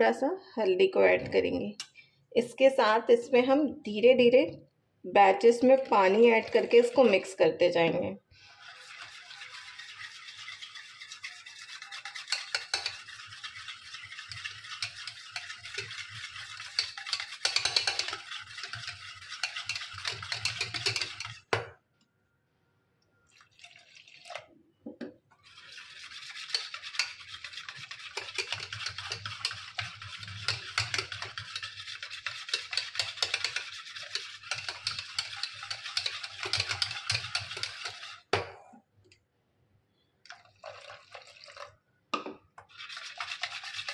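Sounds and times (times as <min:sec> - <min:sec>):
whisk beating batter in metal bowl: 0:05.4 - 0:07.4, 0:08.4 - 0:21.6, 0:25.4 - 0:38.4, 0:42.6 - 0:43.9
water pouring into bowl: 0:23.3 - 0:24.5, 0:40.3 - 0:41.8.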